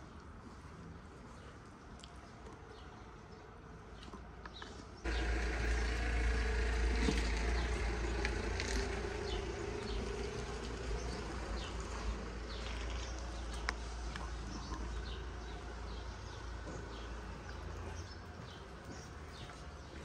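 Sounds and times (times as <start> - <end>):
steady buzzing drone: 5.1 - 10.4.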